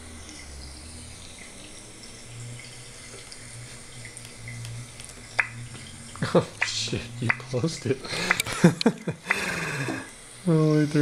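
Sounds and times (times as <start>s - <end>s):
low hum and faint hiss: 0.0s - 11.0s.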